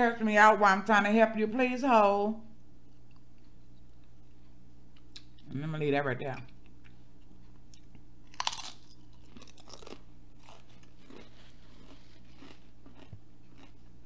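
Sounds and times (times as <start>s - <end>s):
chip crunching while chewed: 7.7s - 14.0s.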